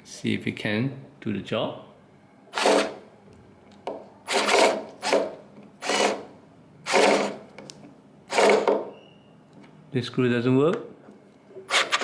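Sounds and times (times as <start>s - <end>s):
cordless screwdriver whirring: 4.3s - 6.2s, 6.9s - 7.4s.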